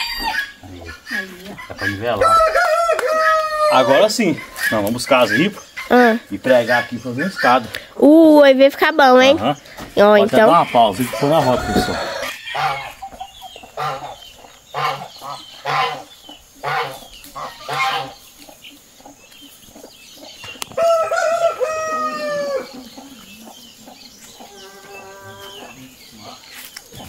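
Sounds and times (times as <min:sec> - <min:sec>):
rooster crowing: 0:00.0 - 0:00.6, 0:01.8 - 0:04.2, 0:10.4 - 0:13.0, 0:20.7 - 0:23.0
hen clucking: 0:00.0 - 0:07.9, 0:09.0 - 0:27.0.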